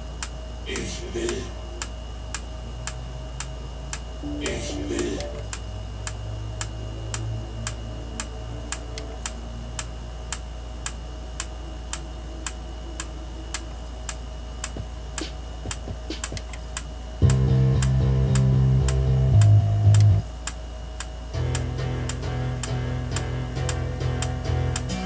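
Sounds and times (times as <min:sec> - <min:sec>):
loud music on a stereo: 0:21.4 - 0:25.0.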